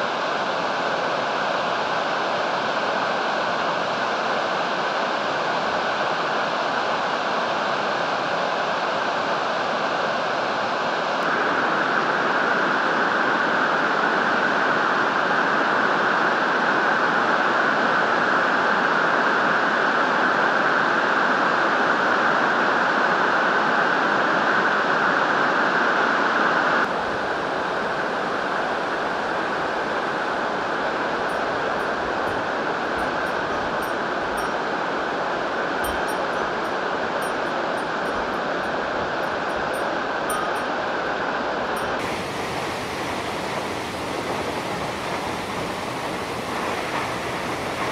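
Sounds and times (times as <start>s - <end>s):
river and waterfall rushing: 26.9s - 47.9s.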